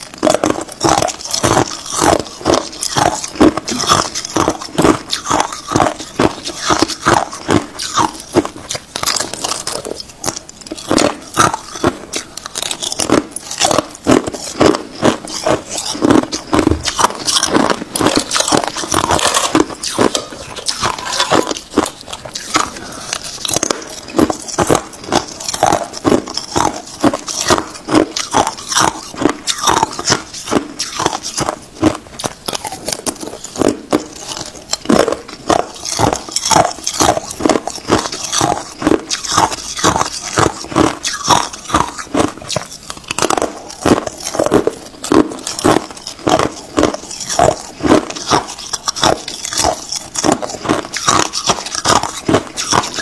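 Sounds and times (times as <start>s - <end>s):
ice being crunched: 0.2s - 53.0s.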